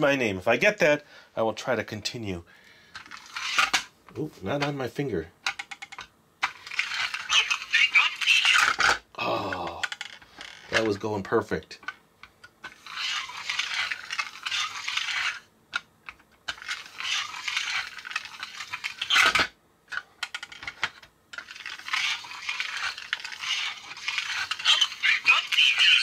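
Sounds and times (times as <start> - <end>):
scratchy hissy record groove noise: 24.1 - 26.0.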